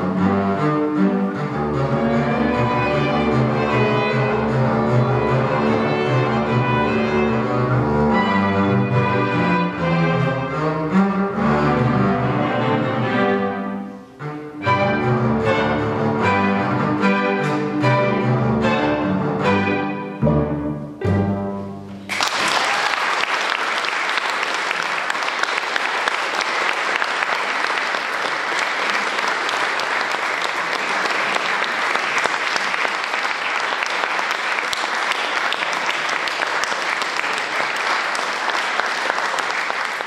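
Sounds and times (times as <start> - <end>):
bowed string chords: 0.0 - 22.0
audience applause: 22.1 - 40.0.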